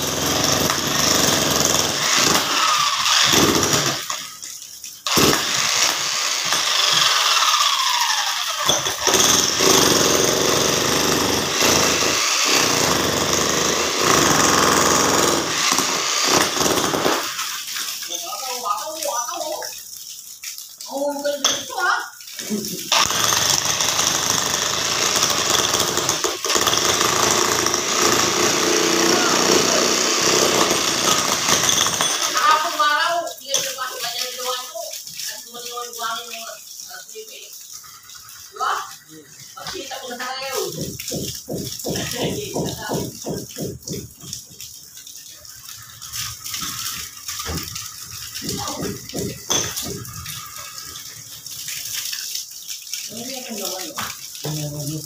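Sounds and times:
demolition hammer pounding ground: 0:00.0 - 0:04.1, 0:08.9 - 0:17.4, 0:22.9 - 0:32.5, 0:40.7 - 0:44.2, 0:48.4 - 0:50.2.

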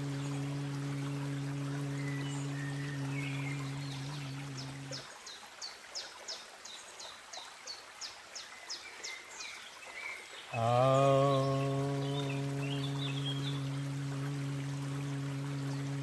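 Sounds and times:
man humming chant: 0:00.0 - 0:05.1, 0:10.5 - 0:16.0
creek murmuring: 0:00.0 - 0:05.2, 0:10.5 - 0:16.0.

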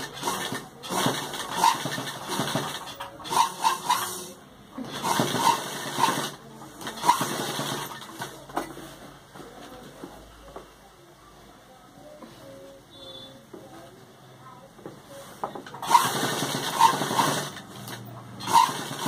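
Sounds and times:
sewing machine stitching fabric: 0:00.0 - 0:08.8, 0:15.4 - 0:19.0.

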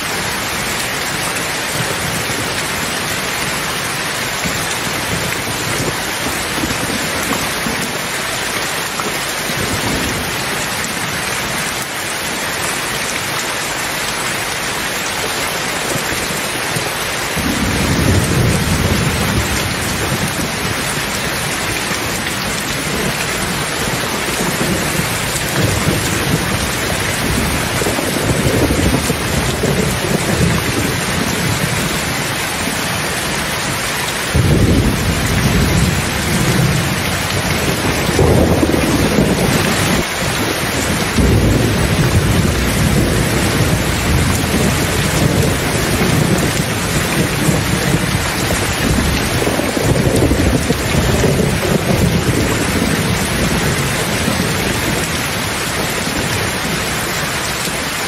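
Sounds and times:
rain hissing: 0:00.0 - 0:58.0
rolling thunder: 0:17.4 - 0:32.8, 0:34.3 - 0:56.8.

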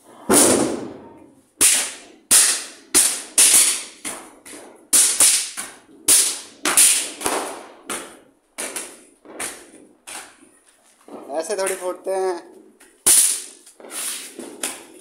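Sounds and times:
firecrackers snapping: 0:00.3 - 0:00.9, 0:01.6 - 0:15.0.

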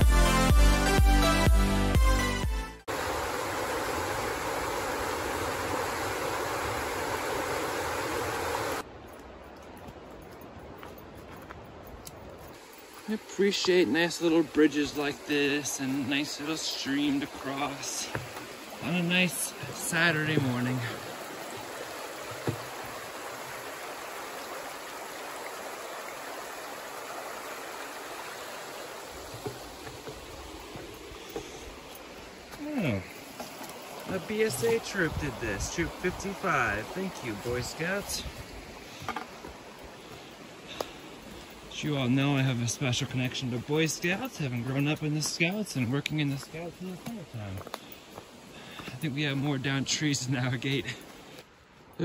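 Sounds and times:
creek babbling over rocks: 0:02.9 - 0:11.2, 0:12.2 - 0:52.0
river rapids roaring: 0:26.1 - 0:39.6.

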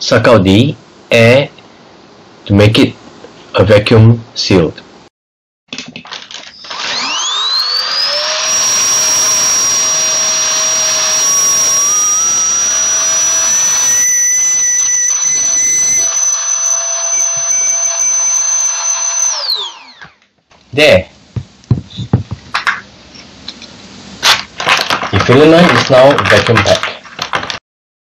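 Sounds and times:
vacuum pump motor whine: 0:06.5 - 0:20.2.

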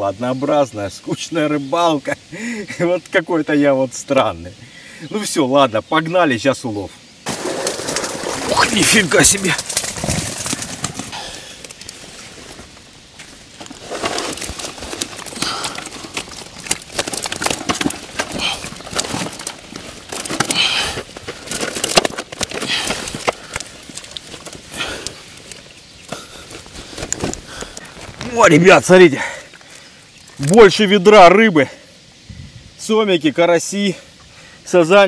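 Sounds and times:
fish flapping and splashing: 0:07.3 - 0:28.3
fish rustling and knocking: 0:07.3 - 0:28.5.

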